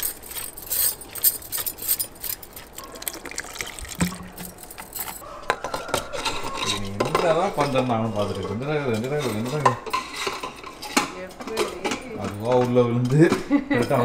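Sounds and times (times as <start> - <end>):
water trickling and splashing: 2.5 - 5.2.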